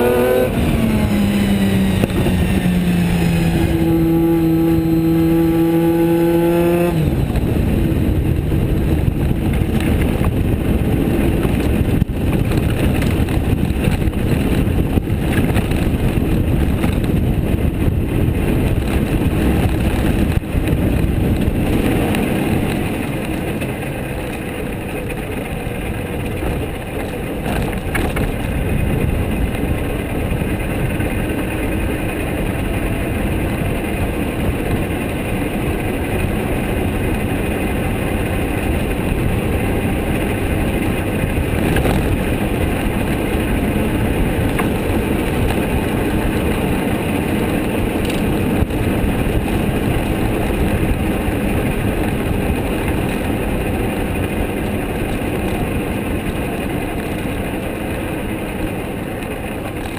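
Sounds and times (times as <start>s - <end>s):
wind rushing: 0.0s - 56.5s
race car engine running hard: 0.0s - 59.9s.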